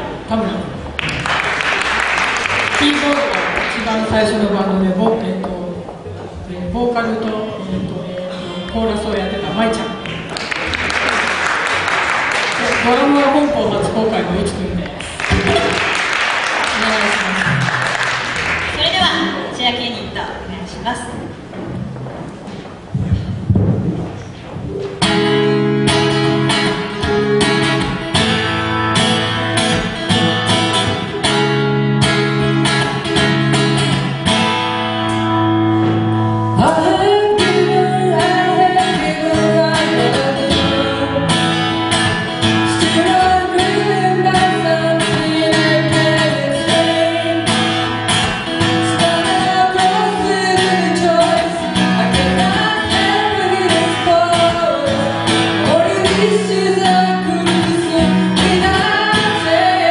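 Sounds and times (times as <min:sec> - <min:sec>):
strummed guitars: 0:07.1 - 0:19.4, 0:23.3 - 0:59.9
drums: 0:22.8 - 0:37.7, 0:38.8 - 0:53.1
bass guitar: 0:22.9 - 0:59.9
woman singing lead vocal: 0:36.6 - 0:41.6, 0:42.6 - 0:47.9, 0:48.6 - 0:59.9.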